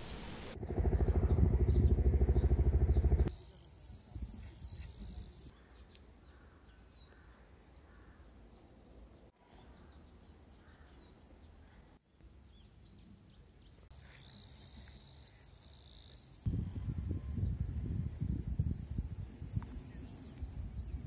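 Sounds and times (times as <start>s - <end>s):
low wind rumble: 0.0s - 3.3s, 16.5s - 21.0s
high insect drone: 0.0s - 5.5s, 14.0s - 21.0s.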